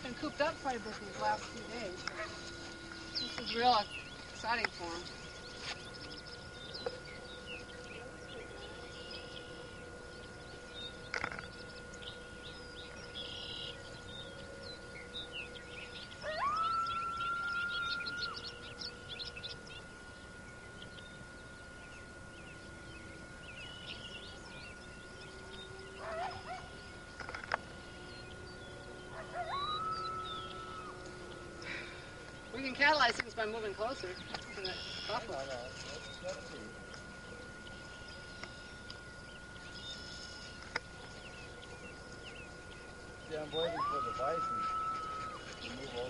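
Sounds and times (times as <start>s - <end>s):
birds chirping: 0.0s - 46.0s
coyotes howling: 0.0s - 46.0s.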